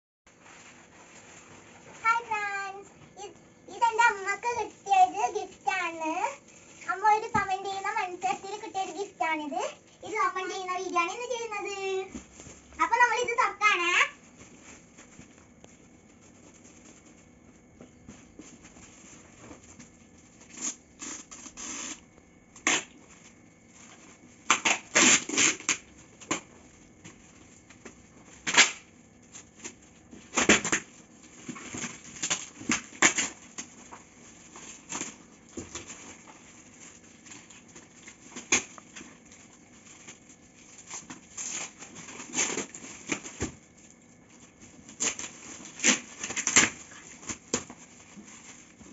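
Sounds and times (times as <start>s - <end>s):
wrapping paper crackling and tearing: 18.5s - 48.9s.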